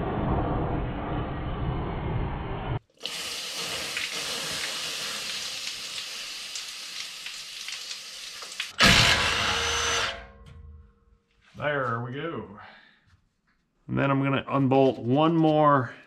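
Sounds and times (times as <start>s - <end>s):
water sizzling on hot metal: 2.9s - 8.8s
impact wrench running: 8.8s - 10.4s.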